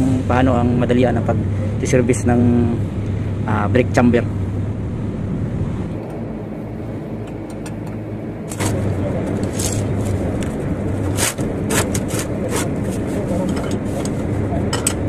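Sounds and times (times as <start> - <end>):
vehicle engine humming: 0.0 - 15.0
metal clicks and scrapes: 11.1 - 14.2.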